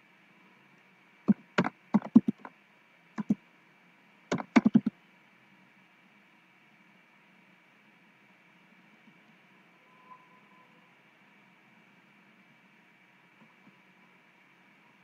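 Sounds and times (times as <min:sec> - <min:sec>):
keyboard typing: 0:01.3 - 0:02.5, 0:04.3 - 0:04.9.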